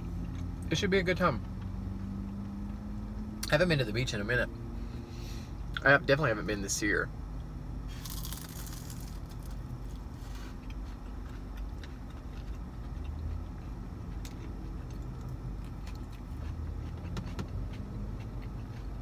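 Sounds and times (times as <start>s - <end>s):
faint chewing: 8.0s - 19.0s.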